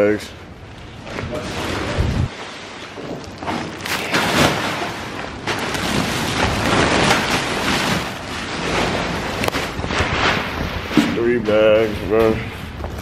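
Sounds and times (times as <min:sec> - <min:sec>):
plastic sacks rustling: 0:00.1 - 0:13.0
sacks thudding: 0:02.8 - 0:13.0.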